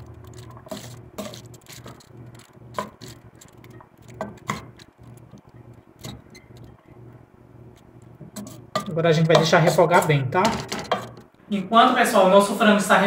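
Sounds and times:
low steady hum: 0.0s - 13.0s
spoon scraping metal pot: 0.1s - 5.2s, 8.3s - 11.3s.

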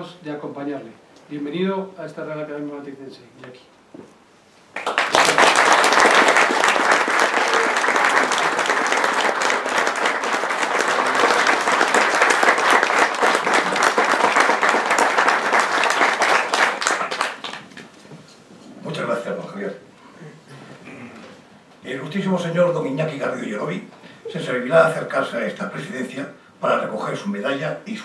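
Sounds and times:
audience applauding: 4.7s - 17.8s.

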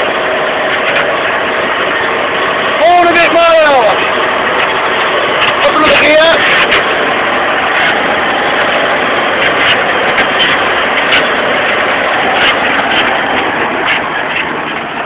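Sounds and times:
sharp clicks and rattles: 0.0s - 15.0s
tractor engine under load: 0.0s - 15.0s.

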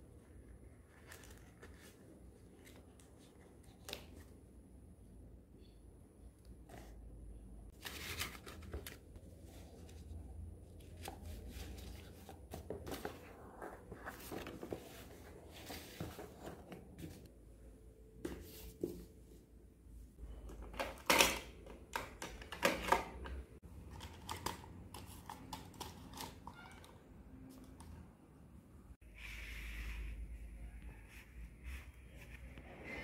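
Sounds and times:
notebook pages rustling: 0.8s - 4.3s, 7.7s - 17.3s.

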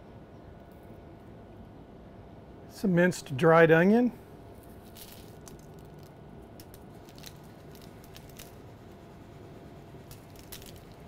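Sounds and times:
faint clicks and crinkles: 4.6s - 9.1s, 10.1s - 11.0s.

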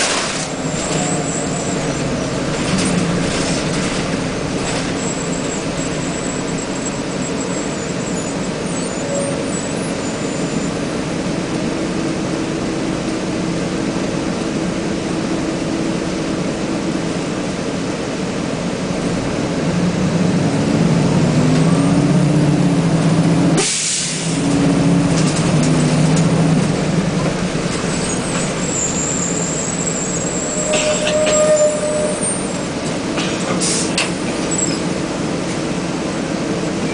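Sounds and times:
bus engine running: 0.0s - 36.9s
sharp hiss of air: 23.6s - 24.3s.

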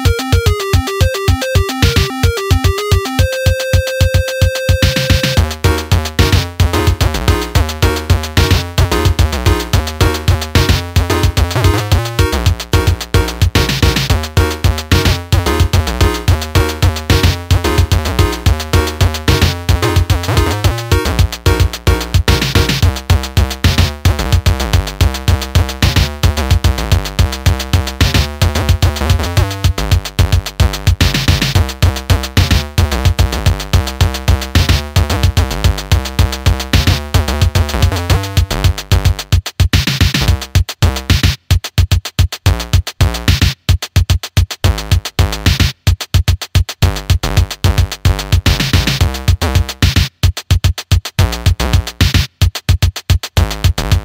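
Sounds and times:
electronic music with steady beat: 0.0s - 54.0s
deep bass: 5.4s - 39.4s, 40.2s - 41.1s, 42.5s - 43.3s, 44.6s - 45.5s, 46.8s - 49.8s, 51.2s - 52.0s, 53.4s - 54.0s.

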